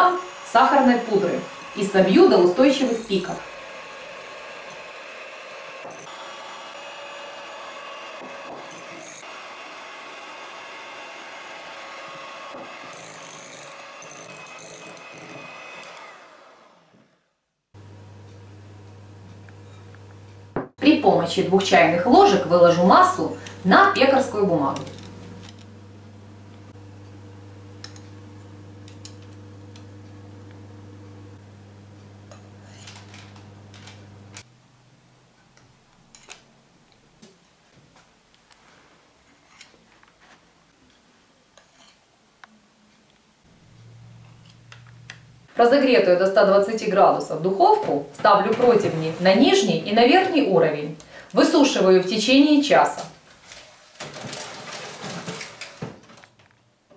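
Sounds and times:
electric hand mixer whirring: 0.0s - 34.4s, 48.2s - 50.5s
low hum: 23.3s - 34.8s, 43.5s - 45.5s.

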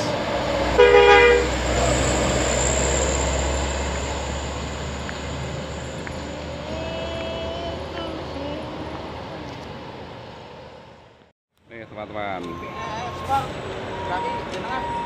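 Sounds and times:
truck diesel engine rumble: 0.0s - 11.2s
truck horn blast: 0.7s - 2.0s.

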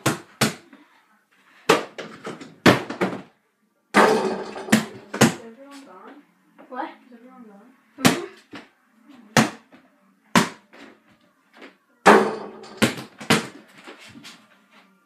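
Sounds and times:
ball banging on hoop with rattle: 4.0s - 5.4s, 12.1s - 13.6s
basketball bouncing: 12.1s - 13.6s.

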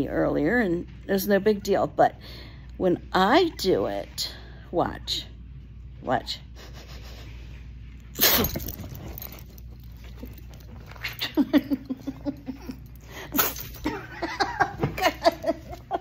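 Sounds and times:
person fake sneezing: 8.2s - 8.6s.

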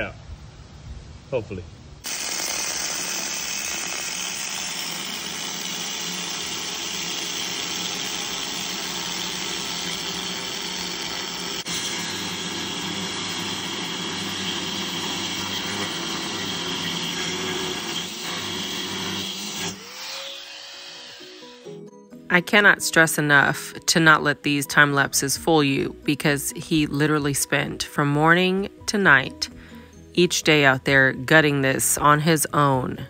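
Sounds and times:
angle grinder cutting steel: 2.0s - 21.8s.

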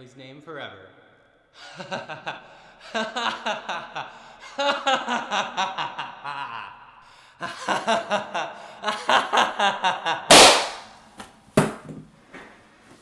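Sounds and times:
person laughing ha ha ha: 1.6s - 10.5s.

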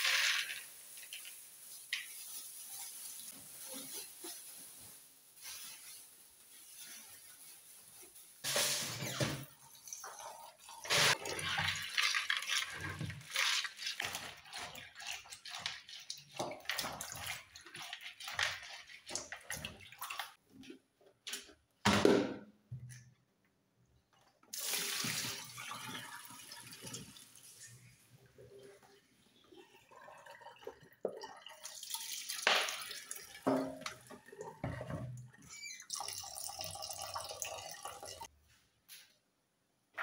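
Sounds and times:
water pouring through strainer: 0.0s - 6.0s, 8.4s - 20.4s, 24.6s - 27.2s, 29.6s - 35.1s, 35.8s - 38.3s
water sloshing in a bowl: 9.4s - 20.4s.

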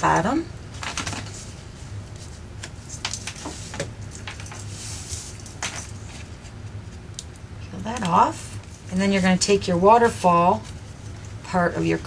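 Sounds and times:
paper rustling and clicking: 0.8s - 1.5s, 2.2s - 6.2s.

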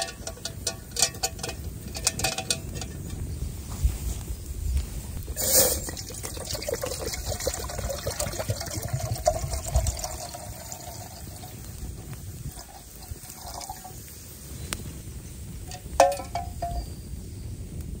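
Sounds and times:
water pouring into metal canteen: 5.3s - 14.1s.

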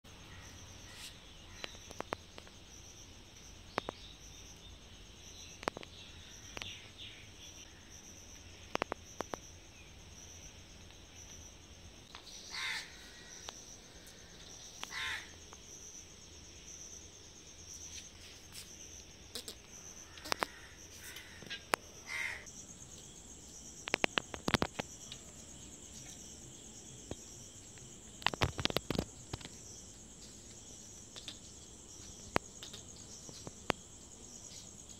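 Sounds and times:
insects chirping: 0.0s - 34.9s
crow cawing: 12.5s - 13.4s, 14.9s - 15.3s, 20.1s - 22.5s.

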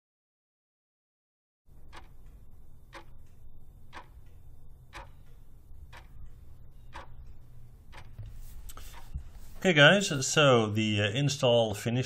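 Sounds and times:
clock ticking: 1.7s - 8.2s
low steady hum: 1.7s - 12.0s.

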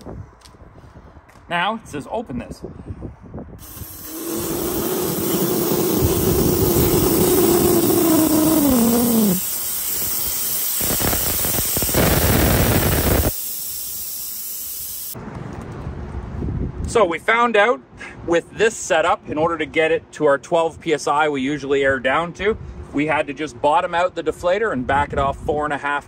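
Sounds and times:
air hissing out of a tire: 3.6s - 15.2s.

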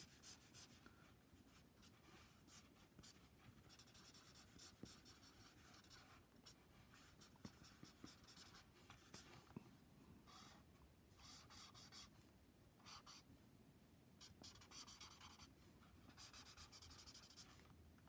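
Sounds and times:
marker scratching on paper: 0.0s - 0.8s, 1.5s - 9.5s, 11.2s - 12.1s, 12.8s - 13.2s, 14.2s - 17.7s.

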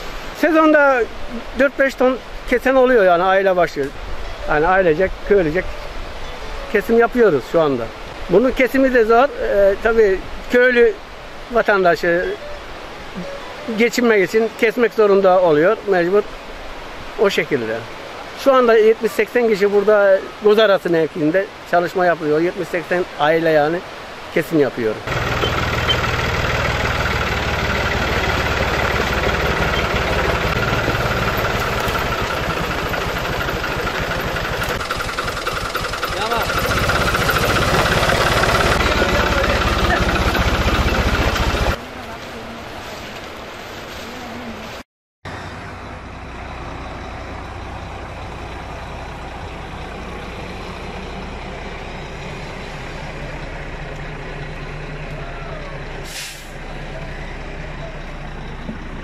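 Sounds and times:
tractor diesel engine knocking: 25.1s - 41.8s, 57.5s - 59.0s.

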